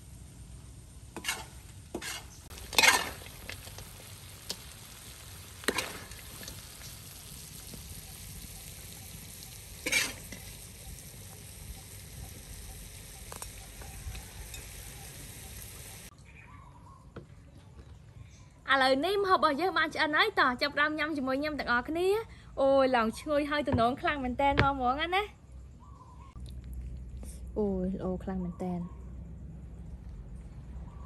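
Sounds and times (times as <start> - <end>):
wok sizzling: 0.0 - 16.1
metal ladle scraping wok: 1.1 - 3.9, 5.6 - 6.6, 9.7 - 10.7.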